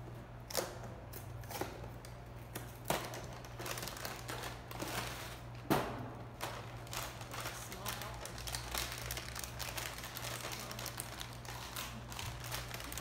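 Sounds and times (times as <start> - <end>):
plastic crinkling: 2.6 - 5.5, 6.3 - 13.0.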